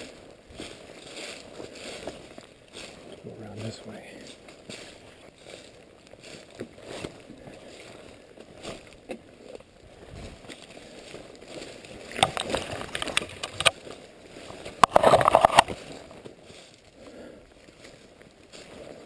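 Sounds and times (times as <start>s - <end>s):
footsteps crunching through dry leaves: 0.0s - 19.0s
twigs snapping: 11.6s - 13.9s, 14.5s - 16.4s
brush scraping against clothing: 14.8s - 15.8s.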